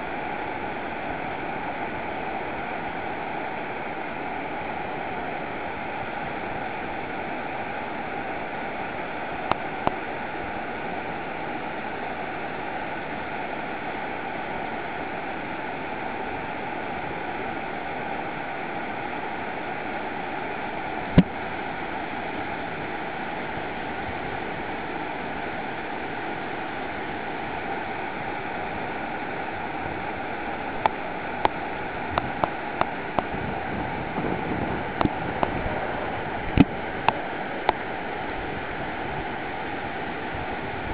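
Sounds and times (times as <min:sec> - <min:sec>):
whitewater rapids roaring: 0:00.0 - 0:40.9.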